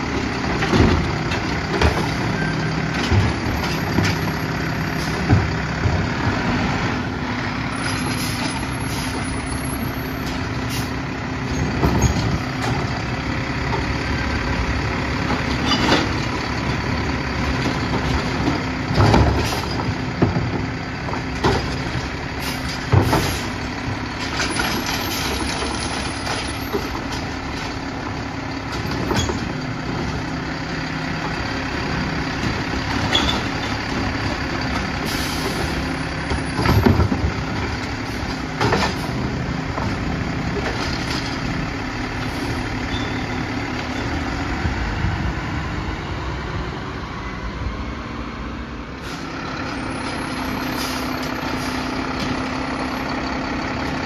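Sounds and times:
truck engine idling: 0.0s - 54.0s
metal clunks and bangs: 0.2s - 6.2s, 11.5s - 13.1s, 15.2s - 16.8s, 17.5s - 27.8s, 28.7s - 30.3s, 32.4s - 41.5s.

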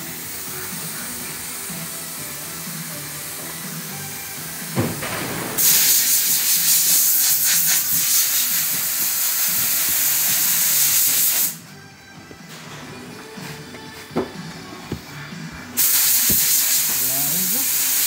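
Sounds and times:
compressed air hissing: 0.0s - 11.6s, 15.0s - 18.0s
knock: 4.8s - 5.4s.

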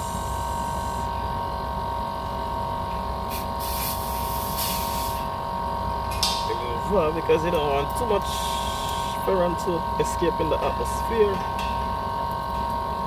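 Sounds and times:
air conditioning unit humming: 0.0s - 13.0s
refrigerant gas hissing: 3.2s - 5.4s, 6.0s - 10.2s.

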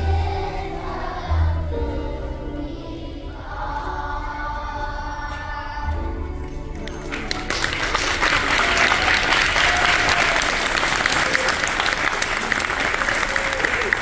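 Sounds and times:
children's choir singing: 0.0s - 7.2s
audience applauding: 6.7s - 14.0s.

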